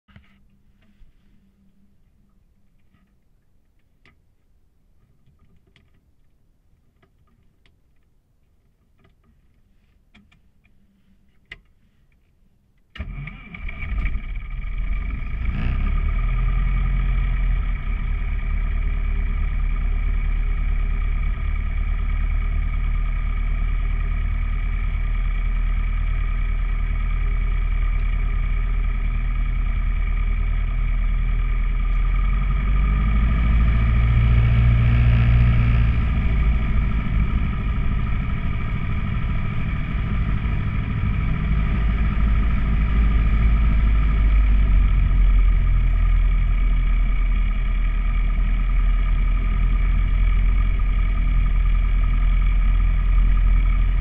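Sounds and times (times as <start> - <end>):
aircraft piston engine idling: 16.4 - 54.0.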